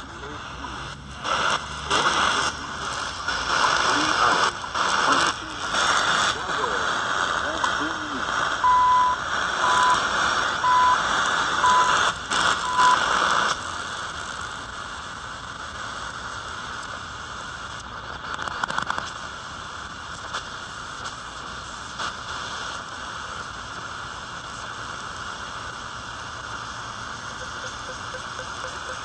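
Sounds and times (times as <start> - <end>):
radio static hiss: 0.0 - 29.0
static crackles: 0.0 - 29.0
radio time signal beeps: 8.6 - 13.0, 27.2 - 29.0.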